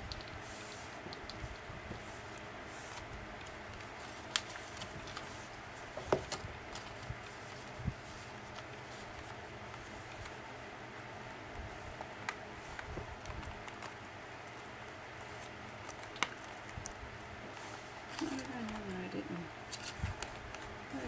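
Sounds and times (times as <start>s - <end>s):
steady hiss: 0.0s - 3.4s
paper rustling: 0.1s - 10.4s, 17.5s - 19.0s.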